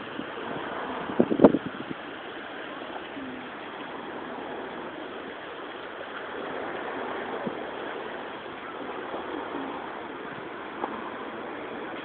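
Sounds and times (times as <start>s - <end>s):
steady outdoor background hiss: 0.0s - 12.0s.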